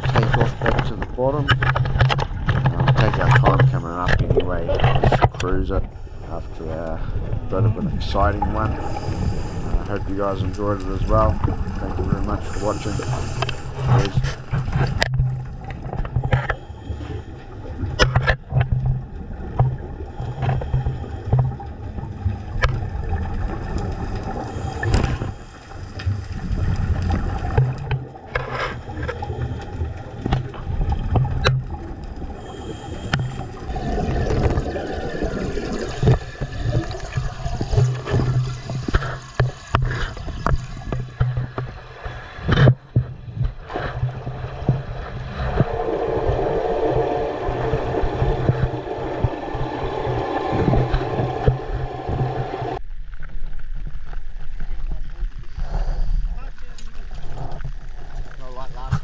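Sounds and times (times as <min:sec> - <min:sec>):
sharp clicks and pops: 0:00.0 - 0:05.9, 0:10.4 - 0:16.6, 0:17.9 - 0:19.8
muffled underwater rumble: 0:00.0 - 0:59.0.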